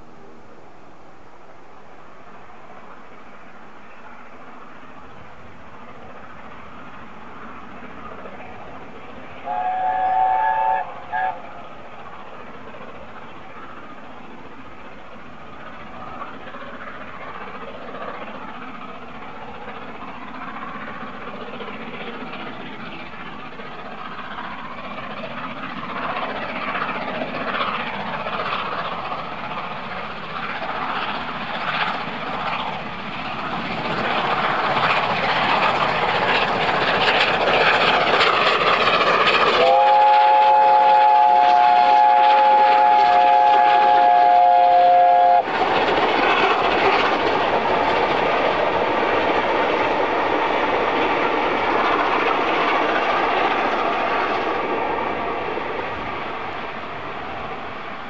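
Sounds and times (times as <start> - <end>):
steam locomotive exhaust beats: 2.7 - 58.0.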